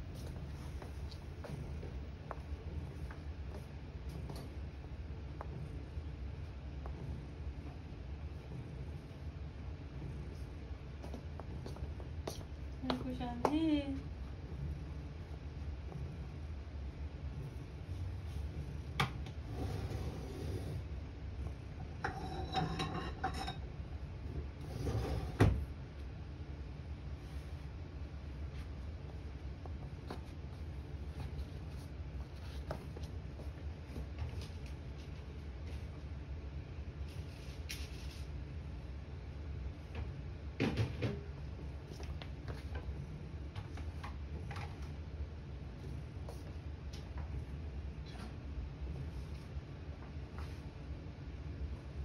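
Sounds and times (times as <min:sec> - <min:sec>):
steady low hum: 0:00.0 - 0:52.0
rustling and scraping: 0:28.4 - 0:36.0, 0:37.0 - 0:38.4.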